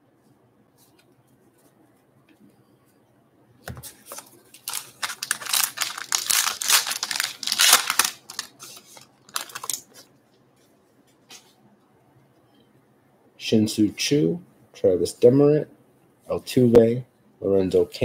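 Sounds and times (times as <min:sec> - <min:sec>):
wrapper tearing and crinkling: 0:04.2 - 0:10.0.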